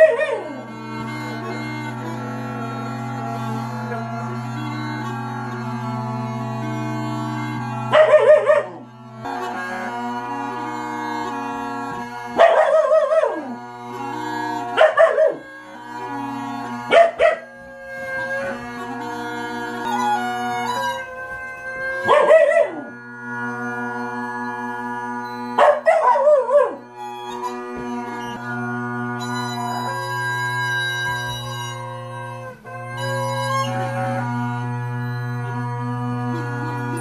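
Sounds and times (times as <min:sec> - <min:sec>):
puppy howling: 0:00.0 - 0:00.6, 0:07.9 - 0:08.8, 0:12.4 - 0:13.6, 0:14.7 - 0:15.5, 0:16.9 - 0:17.5, 0:22.0 - 0:23.0, 0:25.6 - 0:26.8
bagpipe playing: 0:00.0 - 0:37.0.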